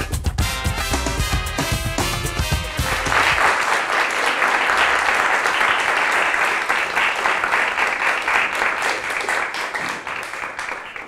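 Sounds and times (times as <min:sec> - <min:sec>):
audience applauding: 0:02.6 - 0:11.0.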